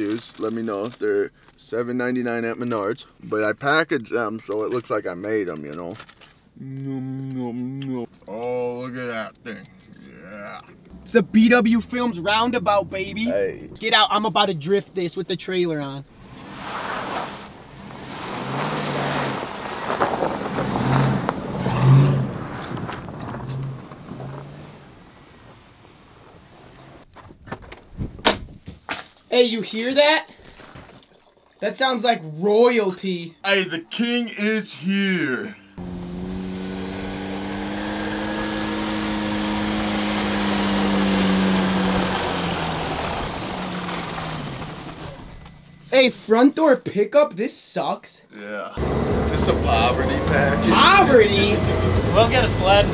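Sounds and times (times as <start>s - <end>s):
suv engine revving: 16.1s - 27.0s, 35.8s - 45.8s, 48.8s - 52.9s
tyres churning snow: 16.2s - 27.0s, 35.8s - 45.3s.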